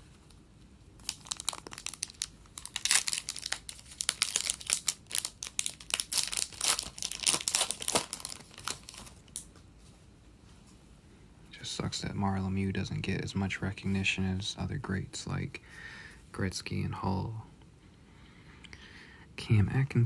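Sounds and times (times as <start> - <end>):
foil wrapper crinkling and tearing: 1.0 - 9.5.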